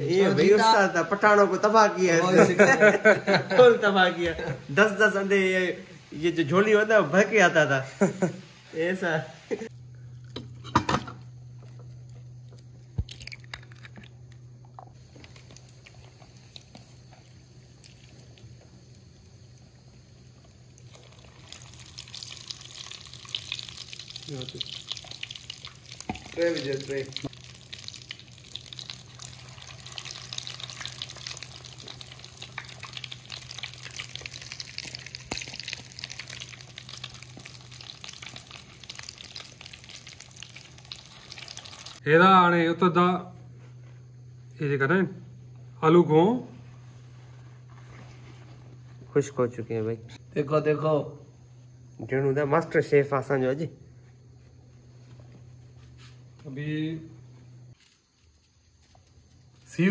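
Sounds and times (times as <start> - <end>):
eggshells cracking on a bowl: 12.9 - 18.4, 20.8 - 42.0
hot oil frying: 14.9 - 42.0.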